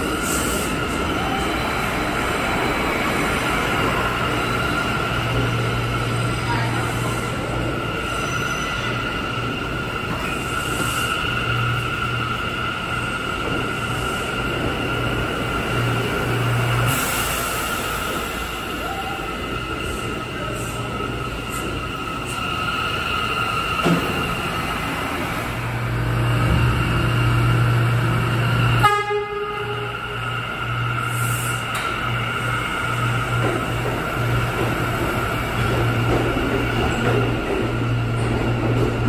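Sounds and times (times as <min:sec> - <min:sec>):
subway train rumble and whine: 0:00.0 - 0:39.0
train horn toot: 0:28.8 - 0:30.1.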